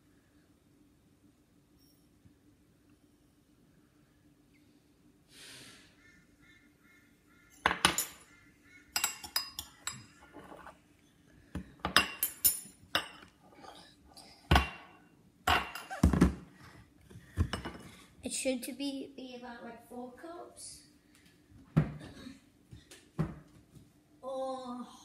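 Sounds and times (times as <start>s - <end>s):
metal spoon clinking on ceramic bowl: 9.0s - 10.7s.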